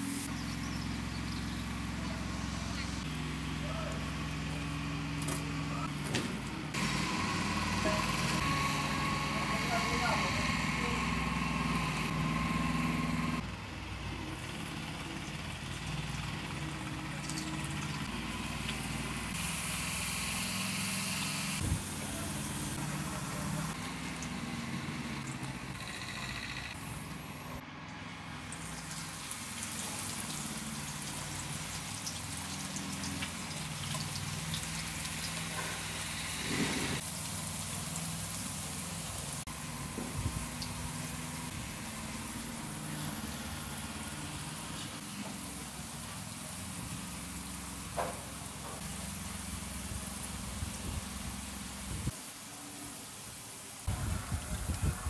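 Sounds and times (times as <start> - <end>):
potatoes sizzling in oil: 0.0 - 3.0, 14.3 - 26.4, 28.4 - 54.8.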